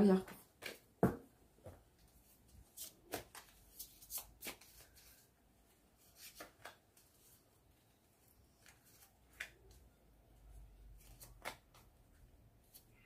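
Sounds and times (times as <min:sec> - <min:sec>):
cards being shuffled: 0:02.6 - 0:05.3, 0:06.0 - 0:07.4, 0:11.0 - 0:11.9.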